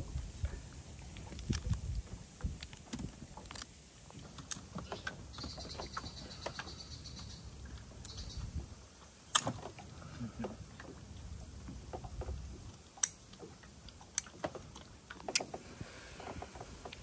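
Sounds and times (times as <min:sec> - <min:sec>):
wind on microphone: 0:00.0 - 0:03.4, 0:08.1 - 0:08.9.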